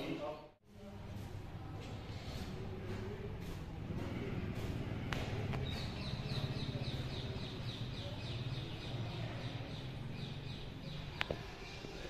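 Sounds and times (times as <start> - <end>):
bird chirping rapidly: 5.6 - 11.8.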